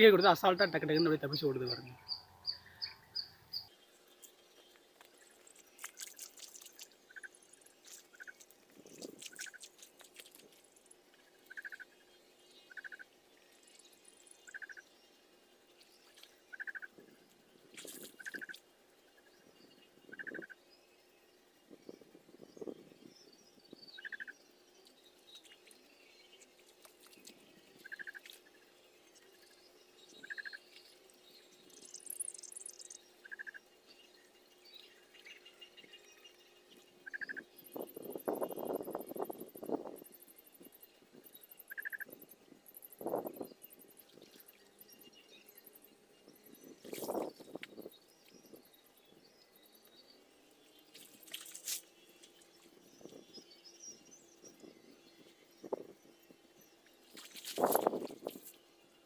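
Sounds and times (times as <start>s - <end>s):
water splashing and dripping: 5.0s - 11.6s, 17.7s - 18.6s, 26.5s - 28.5s, 50.9s - 52.5s, 57.1s - 58.6s.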